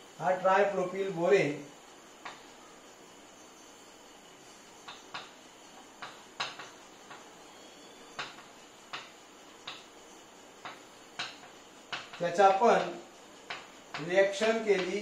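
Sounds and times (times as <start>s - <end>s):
chalk tapping and scraping on blackboard: 10.6s - 15.0s.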